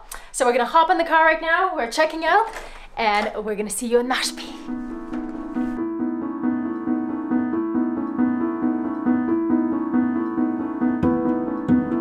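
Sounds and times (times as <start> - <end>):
piano playing alternating notes: 4.2 - 12.0.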